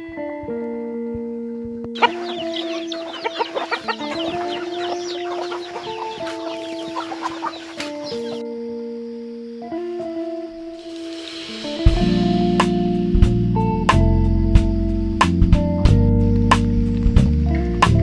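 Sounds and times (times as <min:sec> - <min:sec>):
guitar music: 0:00.0 - 0:18.0
chickens clucking and chicks cheeping: 0:02.0 - 0:08.4.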